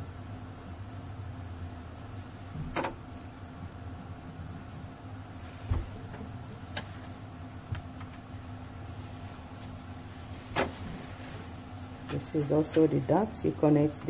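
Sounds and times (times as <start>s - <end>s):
steady low hum: 0.0s - 14.0s
fabric rustling: 8.9s - 12.9s.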